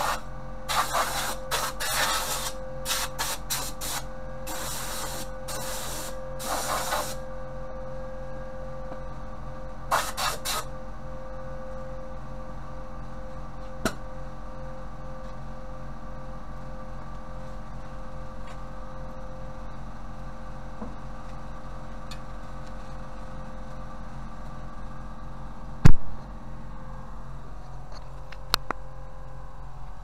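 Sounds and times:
spray gun hissing bursts: 0.0s - 7.2s, 9.9s - 10.7s
steady hum: 0.0s - 30.0s.

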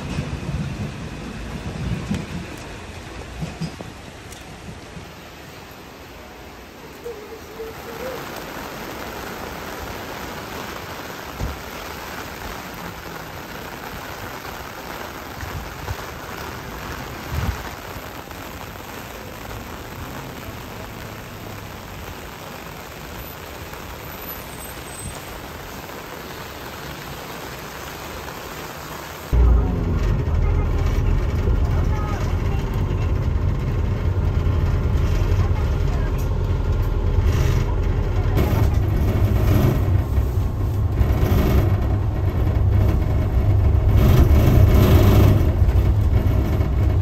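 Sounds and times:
rain on pavement and roofs: 0.0s - 47.0s
low thumps: 29.4s - 35.1s.

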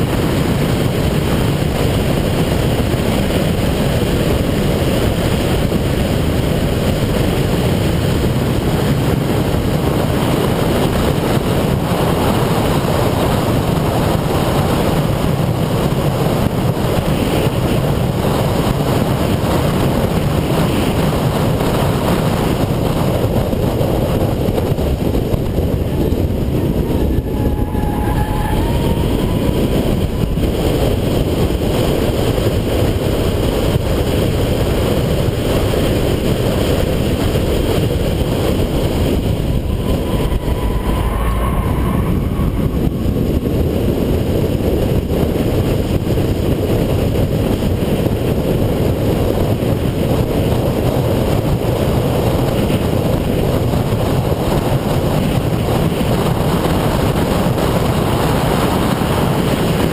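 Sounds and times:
road and tyre noise: 0.0s - 59.9s
car engine rumble in cabin: 21.0s - 46.6s.

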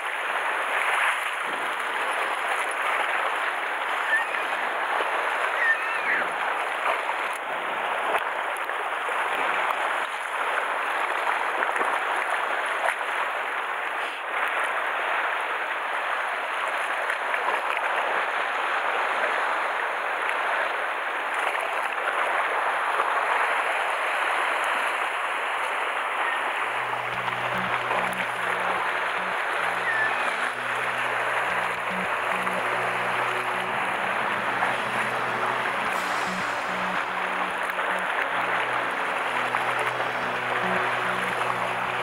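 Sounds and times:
waves splashing on rocky shore: 0.0s - 42.0s
low tone: 26.5s - 42.0s.

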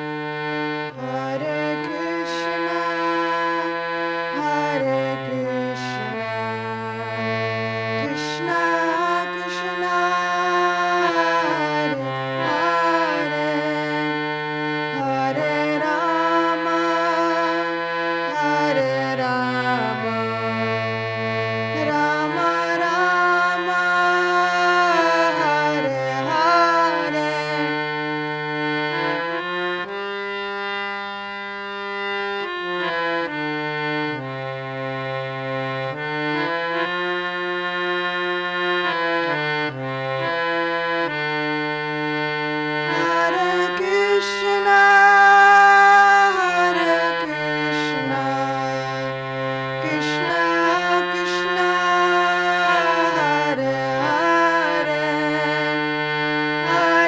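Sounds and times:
harmonium playing slow melody: 0.0s - 57.0s.

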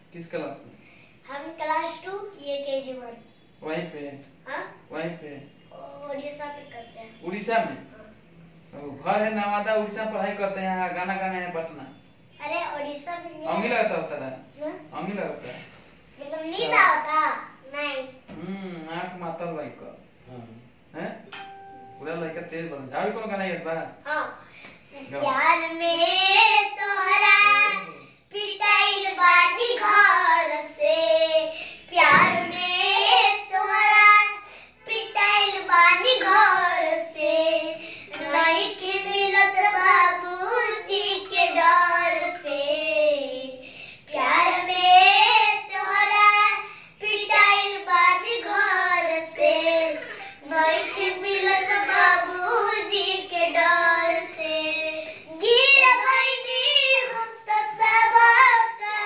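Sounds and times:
boy singing unaccompanied: 25.0s - 59.0s.

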